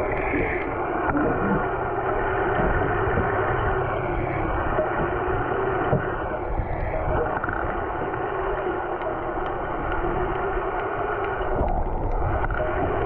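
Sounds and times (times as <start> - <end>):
boat engine idling: 0.0 - 13.0
muffled underwater noise: 0.0 - 13.0.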